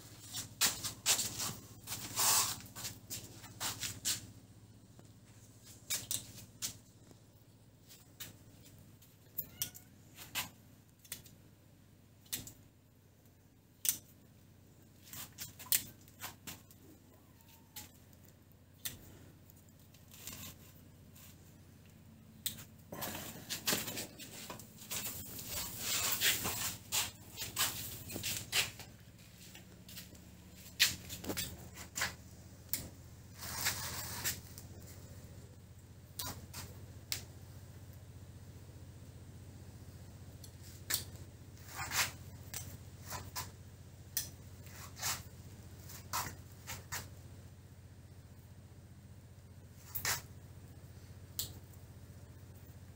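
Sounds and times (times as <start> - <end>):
netting rustling: 22.9 - 32.2.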